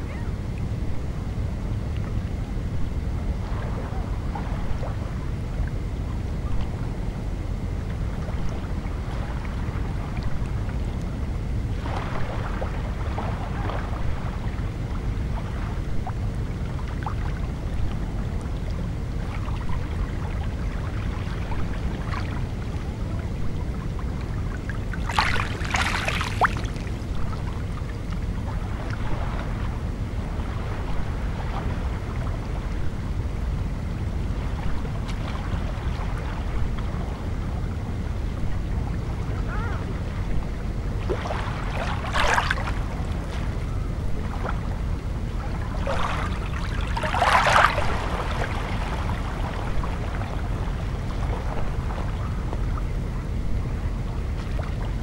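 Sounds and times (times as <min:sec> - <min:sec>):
low rumble: 0:00.0 - 0:55.0
small water splashes: 0:24.2 - 0:28.2, 0:41.0 - 0:43.6, 0:45.6 - 0:52.1.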